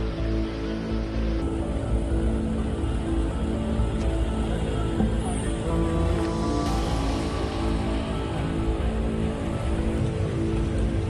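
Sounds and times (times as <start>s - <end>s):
background music with sustained tones: 0.0s - 11.0s
floodwater rushing: 3.7s - 11.0s.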